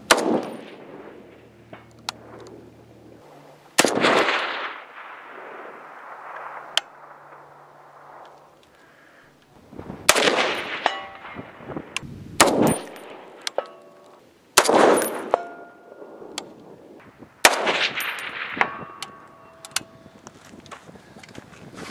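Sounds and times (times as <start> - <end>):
rifle shots: 0.0 - 2.5, 3.8 - 8.5, 10.0 - 13.6, 14.6 - 16.4, 17.4 - 19.5
distant steel target ding: 10.7 - 11.4, 14.9 - 16.1, 18.1 - 20.0.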